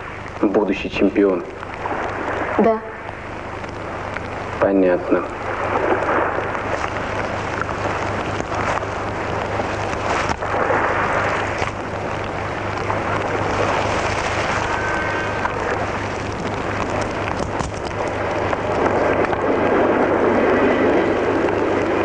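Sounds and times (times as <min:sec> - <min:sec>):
campfire flames rushing: 0:00.0 - 0:22.0
fire crackles: 0:00.0 - 0:22.0
steady low hum: 0:00.0 - 0:22.0.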